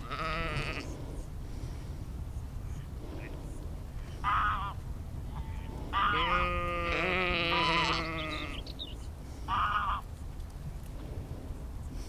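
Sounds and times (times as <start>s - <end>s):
sheep bleating: 0.0s - 0.9s, 4.2s - 8.7s.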